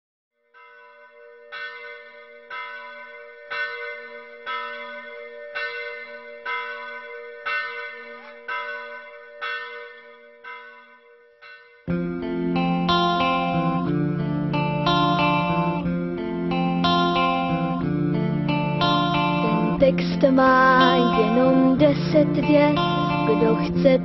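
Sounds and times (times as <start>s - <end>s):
large bell tolling: 0.6s - 24.0s
guitar-led music: 11.9s - 24.0s.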